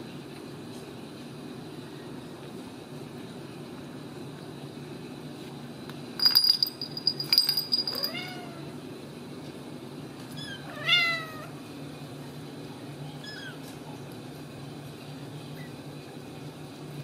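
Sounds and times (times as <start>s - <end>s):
metallic jingling rattle: 6.2s - 8.5s
cat meowing: 10.4s - 11.6s.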